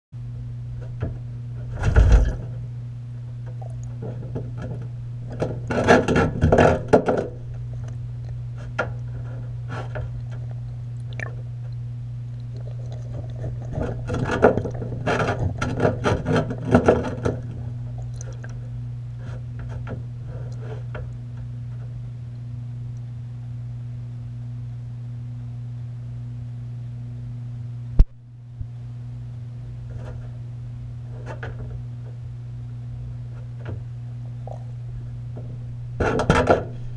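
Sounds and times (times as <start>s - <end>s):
steady low hum: 0.2s - 36.9s
sharp clicks and knocks underwater: 3.4s - 9.1s, 9.8s - 18.7s.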